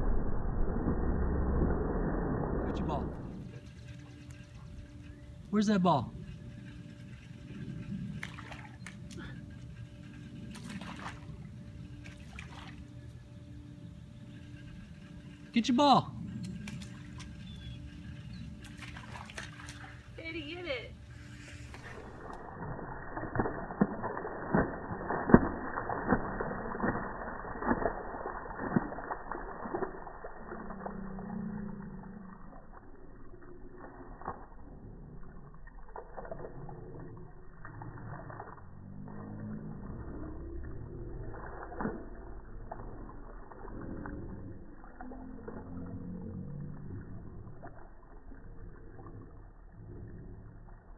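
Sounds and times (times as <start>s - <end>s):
low drawn-out smeared sounds: 0.0s - 12.2s, 20.2s - 50.9s
slowed-down dog splashing: 0.0s - 50.9s.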